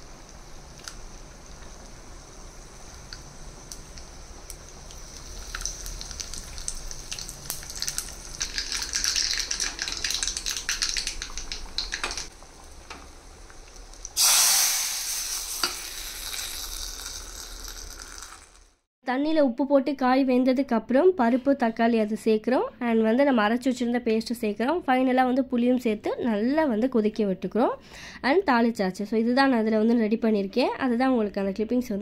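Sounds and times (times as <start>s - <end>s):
hot oil sizzling: 0.0s - 18.9s
loud burst of sizzling: 14.0s - 18.9s.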